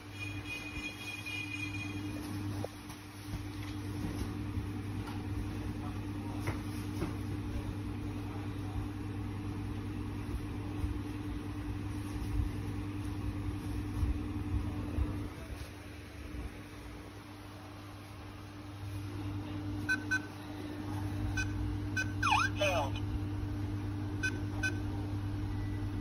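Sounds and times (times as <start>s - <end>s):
noisy background: 19.4s - 23.1s.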